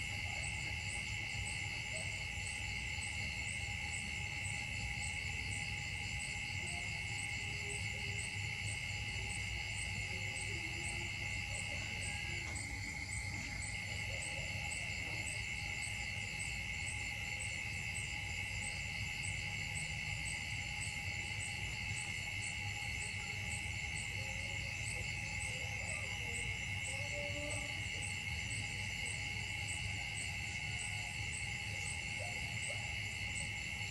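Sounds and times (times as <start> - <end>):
insects droning: 0.0 - 33.9
pulsing insect chirp: 0.0 - 33.9.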